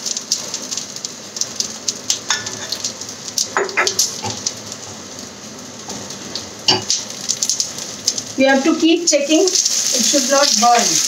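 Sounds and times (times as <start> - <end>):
okra sizzling in hot oil: 0.0 - 11.0.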